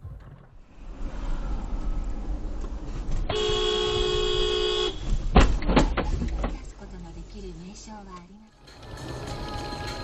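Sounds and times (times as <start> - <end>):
car driving rumble: 0.0 - 9.8
car horn blast: 3.3 - 5.1.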